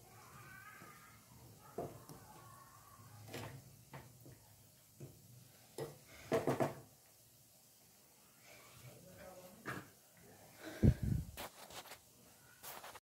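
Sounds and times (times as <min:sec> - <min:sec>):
wooden spatula knocking on pan: 0:00.8 - 0:02.3, 0:05.8 - 0:06.9.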